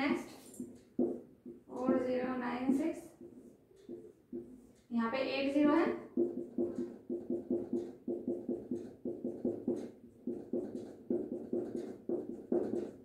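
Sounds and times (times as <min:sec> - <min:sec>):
pen writing strokes: 0:06.0 - 0:13.0.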